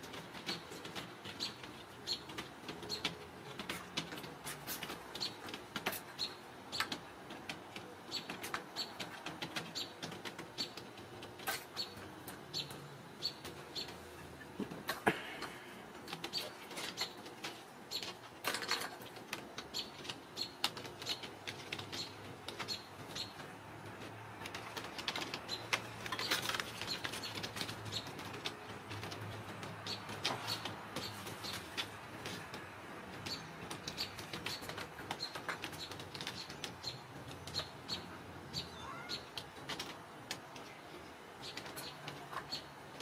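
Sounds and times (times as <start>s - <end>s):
small birds chirping: 0.0s - 43.0s
high bird chirps: 33.3s - 39.3s
brief rising bird calls: 38.6s - 39.3s.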